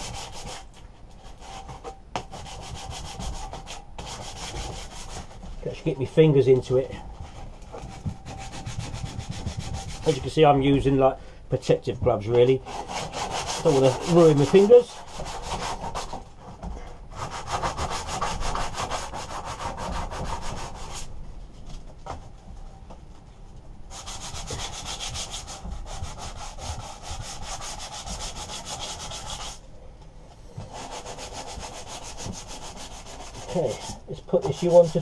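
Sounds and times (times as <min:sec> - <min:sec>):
sandpaper scratching on metal: 0:00.0 - 0:05.4, 0:07.8 - 0:10.4, 0:12.6 - 0:16.2, 0:17.2 - 0:21.1, 0:23.9 - 0:29.6, 0:30.7 - 0:35.0.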